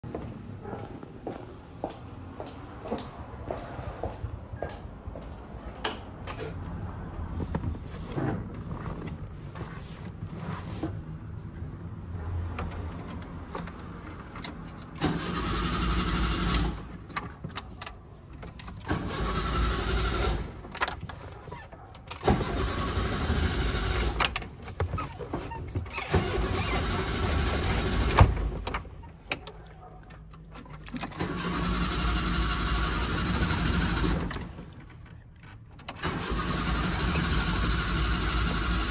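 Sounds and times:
car starter cranking engine: 13.6s - 17.0s, 18.6s - 21.0s, 22.0s - 24.6s, 25.9s - 29.0s, 30.7s - 34.8s, 35.8s - 38.9s.

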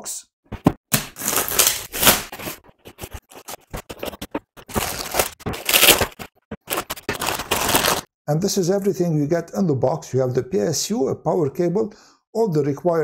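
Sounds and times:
plastic shrink-wrap tearing: 1.2s - 2.6s, 4.7s - 8.1s
packaging rustling and scraping: 1.2s - 8.1s.

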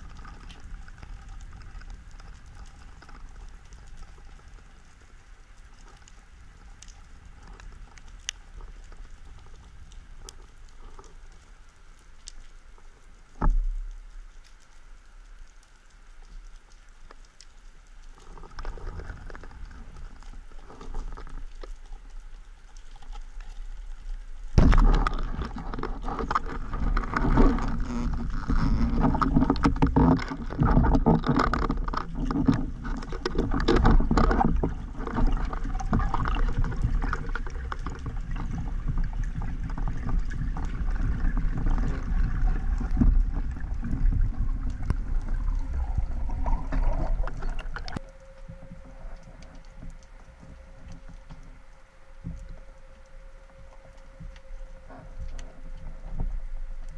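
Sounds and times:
churning water and bubbles: 0.0s - 11.8s, 16.8s - 56.9s
knocks and clatter underwater: 13.4s - 14.1s, 24.6s - 51.6s.

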